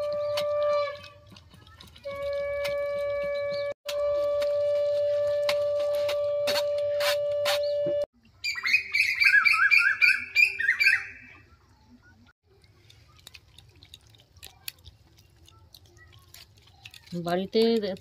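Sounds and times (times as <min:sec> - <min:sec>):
bird chirping: 0:07.6 - 0:12.2.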